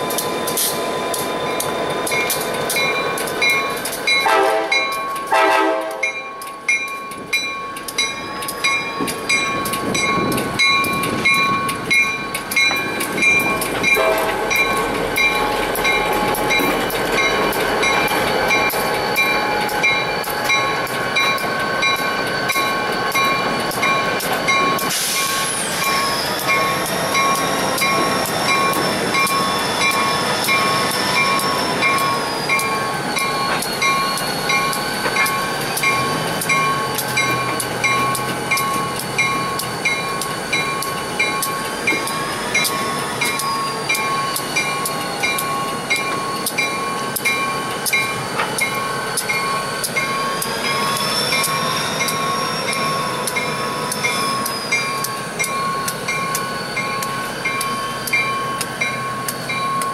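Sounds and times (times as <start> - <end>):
crossing signal bell ringing: 0.0 - 59.9
locomotive horn blast: 4.2 - 6.2, 14.0 - 14.6.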